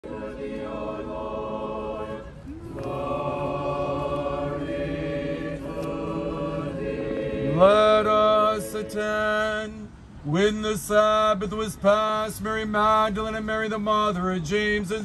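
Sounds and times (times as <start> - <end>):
voices chanting long notes: 0.0 - 9.7
low sung drone: 0.0 - 9.8.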